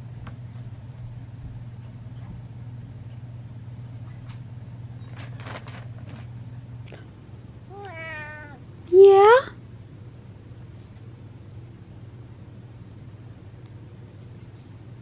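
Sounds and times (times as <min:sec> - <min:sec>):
steady low hum: 0:00.0 - 0:15.0
cat meowing: 0:07.7 - 0:08.6.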